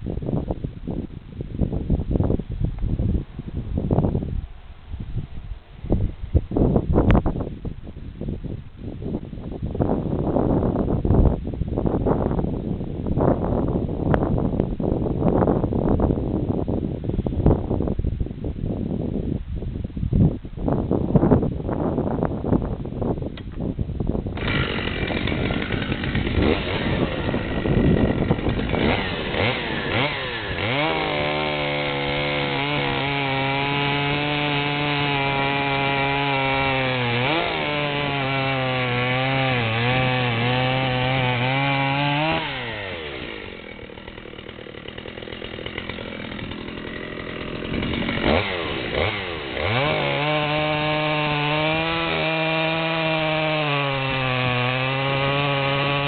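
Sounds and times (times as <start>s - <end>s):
chainsaw cutting log: 24.4s - 56.0s.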